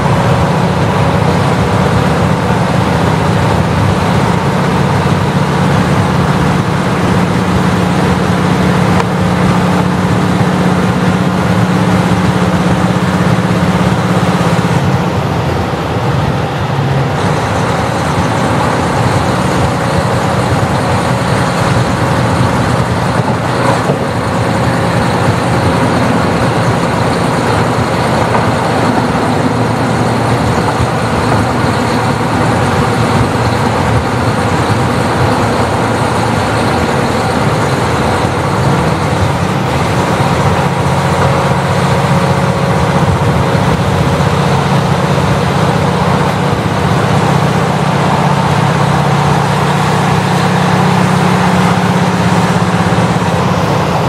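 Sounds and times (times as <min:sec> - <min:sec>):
diesel railcar engine droning: 0:00.0 - 0:54.0
wheel and rail noise: 0:00.0 - 0:54.0.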